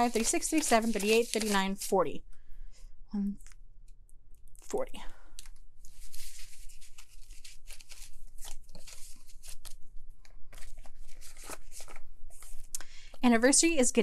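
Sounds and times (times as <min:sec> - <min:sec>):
banknotes rustling: 0:00.0 - 0:02.0, 0:05.8 - 0:12.7.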